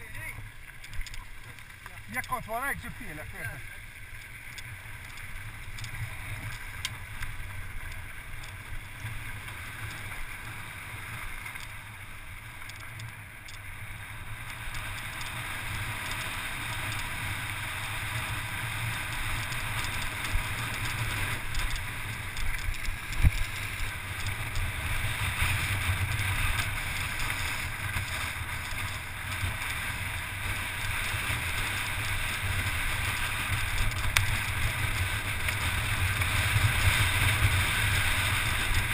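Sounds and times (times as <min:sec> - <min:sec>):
tyres rolling over gravel: 0:00.0 - 0:13.2.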